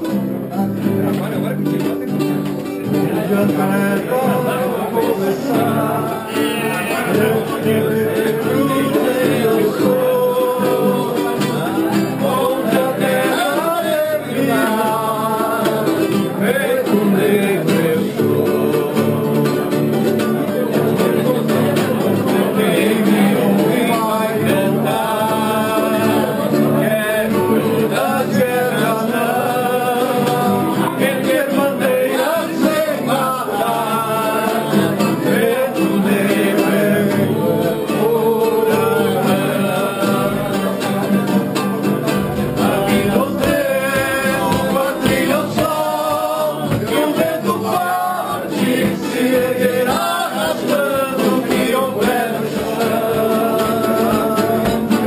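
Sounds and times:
strummed acoustic guitars: 0:00.0 - 0:55.0
men singing together: 0:02.6 - 0:55.0.

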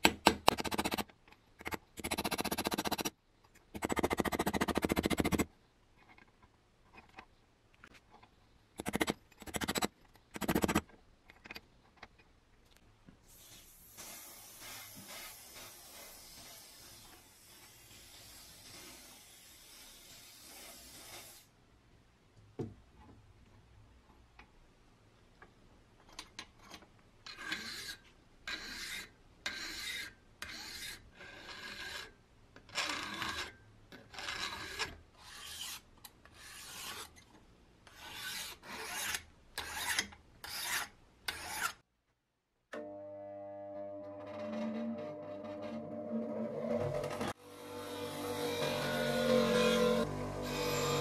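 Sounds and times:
hand file strokes on brass: 0:13.2 - 0:21.5, 0:27.3 - 0:32.2, 0:34.2 - 0:37.2, 0:37.9 - 0:41.8
aerosol can spraying: 0:13.3 - 0:16.9.

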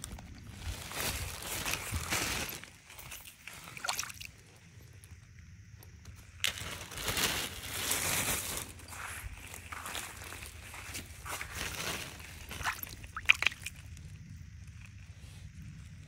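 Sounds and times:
footsteps squelching through mud: 0:08.1 - 0:13.8.

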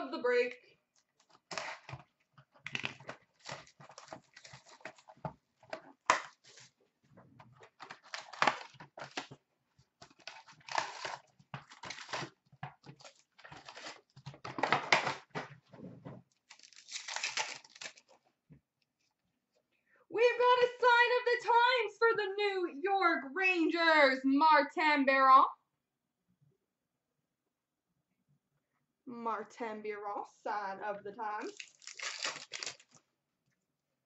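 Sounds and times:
crinkling and tearing wrappers: 0:01.1 - 0:06.8, 0:07.6 - 0:09.4, 0:10.0 - 0:15.3, 0:16.4 - 0:18.3, 0:31.5 - 0:33.0.

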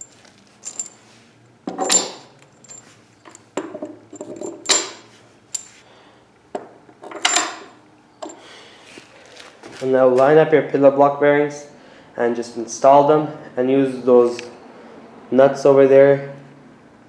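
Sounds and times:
metal bolts clinking: 0:00.0 - 0:01.0, 0:01.6 - 0:05.8, 0:07.0 - 0:08.4.

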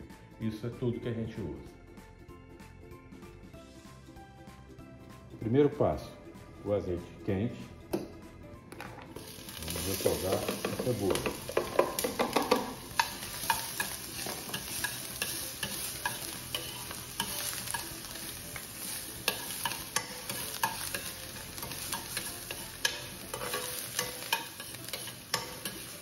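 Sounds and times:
onion sizzling in oil: 0:09.2 - 0:26.0
metal spoon scraping pan: 0:09.7 - 0:17.9, 0:18.6 - 0:26.0.

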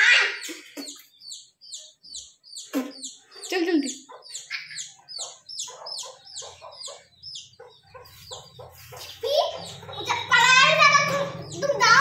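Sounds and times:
chick peeping: 0:00.0 - 0:12.0.

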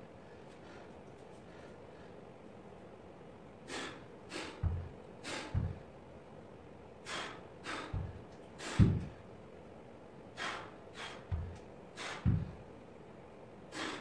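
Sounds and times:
person breathing forcefully: 0:03.6 - 0:06.0, 0:07.0 - 0:09.3, 0:10.3 - 0:12.7, 0:13.7 - 0:14.0
dumbbells thudding on floor mat: 0:04.6 - 0:05.8, 0:07.8 - 0:09.2, 0:11.3 - 0:12.6.

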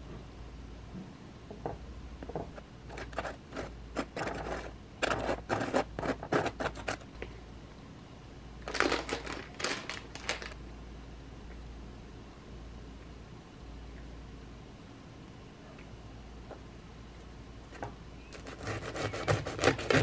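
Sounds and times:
knife scraping toasted bread: 0:02.9 - 0:07.0, 0:18.3 - 0:20.0
plastic package crinkling: 0:08.6 - 0:10.6.

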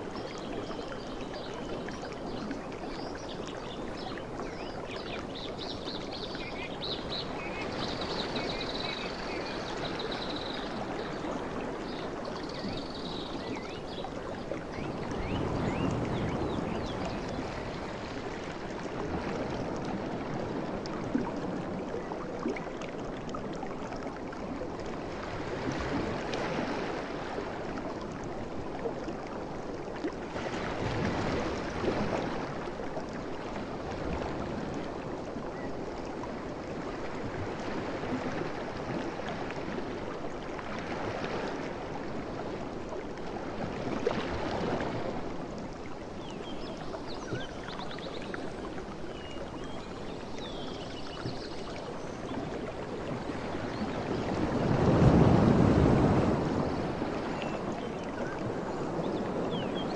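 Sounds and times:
ocean waves breaking: 0:52.3 - 0:59.9.

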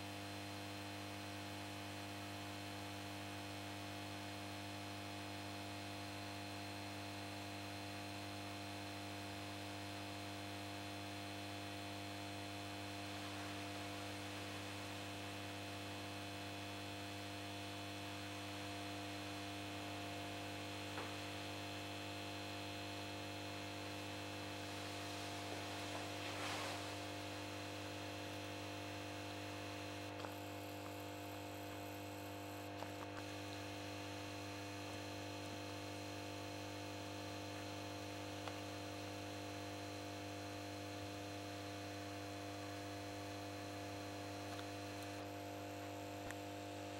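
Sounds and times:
soft rustle: 0:24.6 - 0:27.3.

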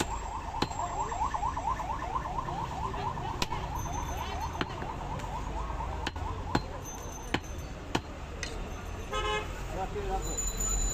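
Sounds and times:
cleaver chopping meat on wood: 0:00.0 - 0:00.8, 0:06.0 - 0:08.2.

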